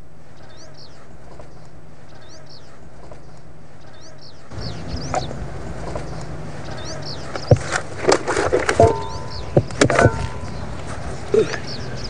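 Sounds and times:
birds chirping: 0.0s - 12.0s
low steady hum: 0.0s - 12.0s
irregular knocks and clatters: 7.4s - 10.6s.

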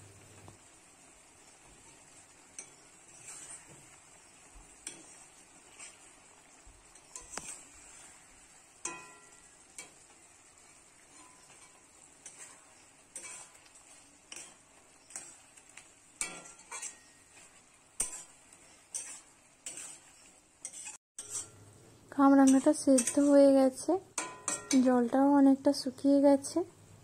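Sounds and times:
metal spatula scraping metal pan: 2.5s - 21.6s, 22.3s - 23.6s, 24.2s - 25.0s.

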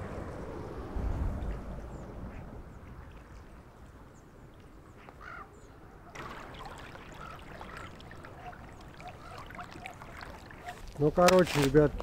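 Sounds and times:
river water flowing and lapping: 0.0s - 12.0s.

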